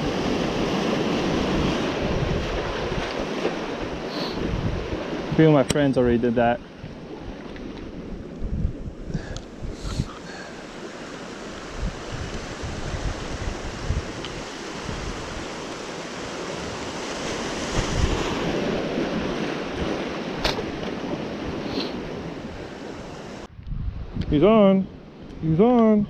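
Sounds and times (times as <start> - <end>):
wind buffeting microphone: 0.0 - 26.0
surf breaking over rocks: 10.1 - 23.5.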